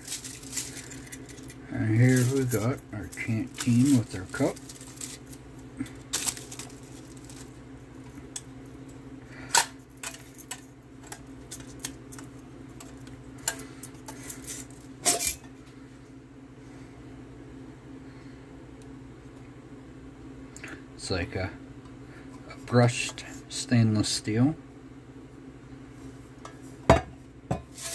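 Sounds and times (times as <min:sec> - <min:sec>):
paper wrapping rustling: 0:00.0 - 0:07.6.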